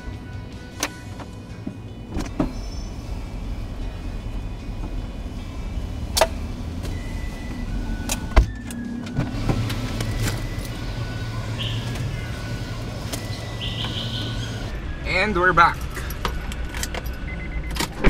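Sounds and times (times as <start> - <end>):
low steady rumble: 0.0 - 17.8.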